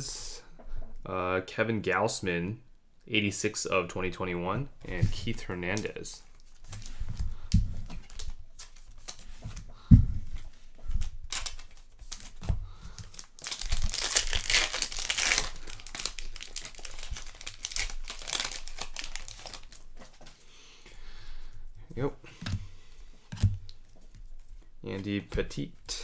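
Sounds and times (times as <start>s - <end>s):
wrapper crinkling and tearing: 7.9s - 9.3s, 11.0s - 20.2s.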